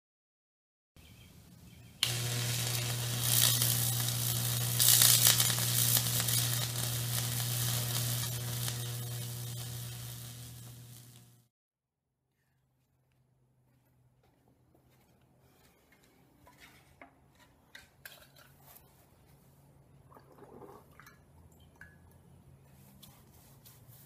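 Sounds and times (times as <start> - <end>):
low transformer hum: 2.0 - 11.4
electric arc sizzling and crackling: 2.0 - 11.5.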